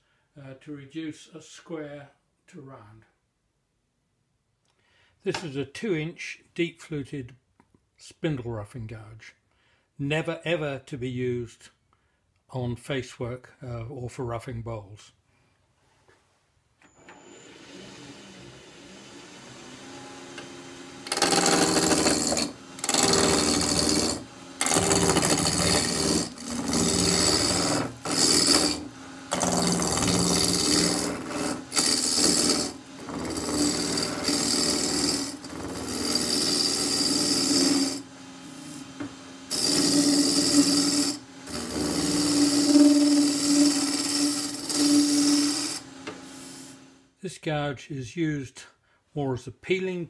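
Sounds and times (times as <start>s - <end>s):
gouge cutting wood on lathe: 17.4s - 46.9s
wood lathe running: 17.4s - 47.0s.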